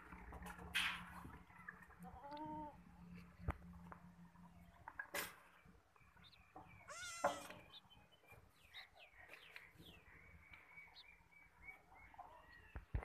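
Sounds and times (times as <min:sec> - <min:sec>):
goat kid bleating: 0:02.1 - 0:02.8, 0:06.8 - 0:07.5.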